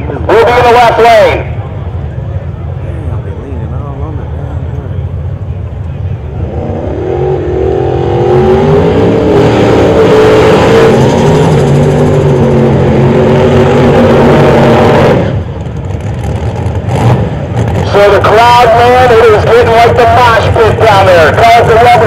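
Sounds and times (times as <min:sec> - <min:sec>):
tires spinning: 0:06.0 - 0:22.0
race car engine revving: 0:06.2 - 0:22.0.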